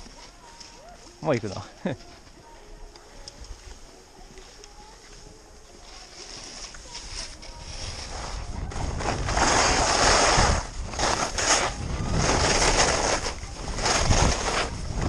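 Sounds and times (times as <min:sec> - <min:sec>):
skis scraping over snow: 0:03.2 - 0:15.0
wind rumbling on microphone: 0:06.5 - 0:15.0.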